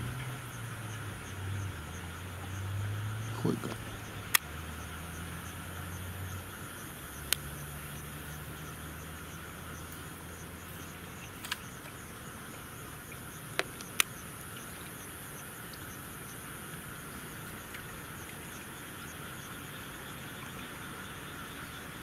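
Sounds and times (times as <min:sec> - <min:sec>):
night insects chirping: 0:00.0 - 0:22.0
sharp clicks: 0:03.4 - 0:04.5, 0:11.3 - 0:11.9.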